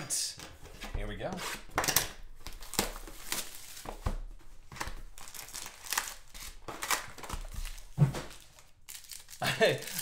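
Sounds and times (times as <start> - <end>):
plastic and foil packs crinkling: 5.0 - 10.0.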